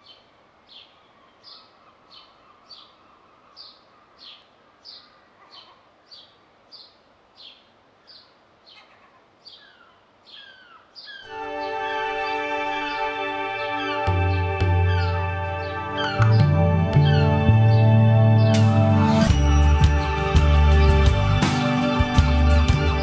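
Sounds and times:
faint outdoor ambience: 0.0 - 23.0
bird calling downward notes: 10.4 - 23.0
loud music: 11.3 - 23.0.

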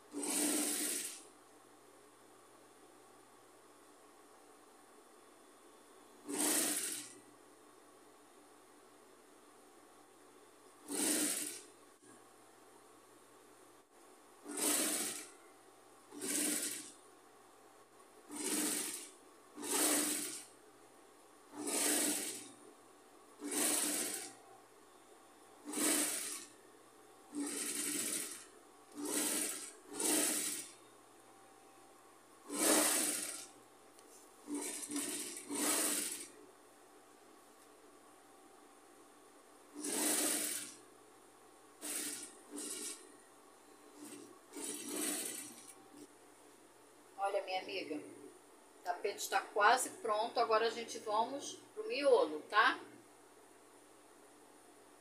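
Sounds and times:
sewing machine stitching: 0.0 - 1.3, 6.2 - 7.2, 10.8 - 12.2, 14.4 - 15.4, 16.1 - 17.0, 18.3 - 20.6, 21.5 - 22.7, 23.4 - 24.4, 25.6 - 26.6, 27.3 - 30.8, 32.5 - 33.6, 34.4 - 36.4, 39.7 - 40.8, 41.8 - 43.1, 43.9 - 46.1.

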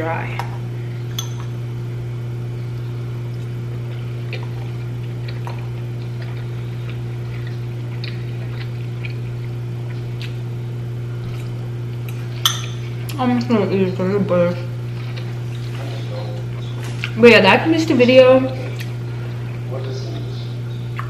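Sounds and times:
steady low hum: 0.0 - 21.0
fork clinking in ceramic bowl: 1.1 - 1.6, 12.4 - 12.8.

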